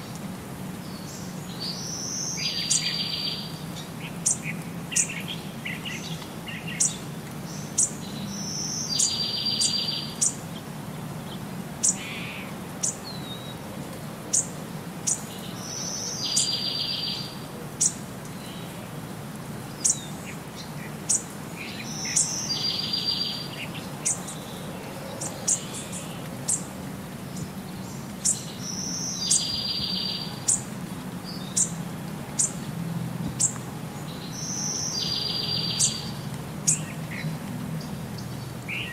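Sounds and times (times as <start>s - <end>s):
bird chirping and trilling: 15.9s - 18.0s, 21.1s - 24.5s, 28.2s - 30.6s, 34.2s - 37.0s.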